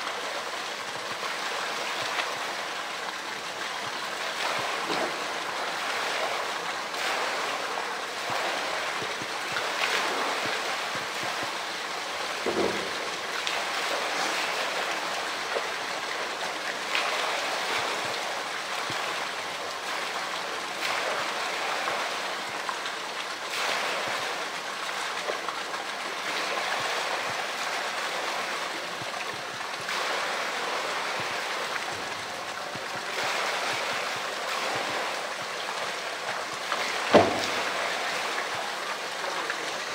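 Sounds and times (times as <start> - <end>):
water splashing and sloshing: 0.0 - 39.9
sharp hits on plastic drum: 12.4 - 13.2, 37.1 - 37.8.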